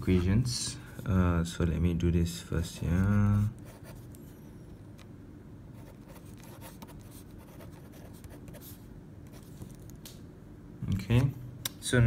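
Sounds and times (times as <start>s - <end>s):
low steady hum: 0.0s - 12.0s
pen scratching on paper: 3.0s - 4.1s, 5.8s - 9.7s.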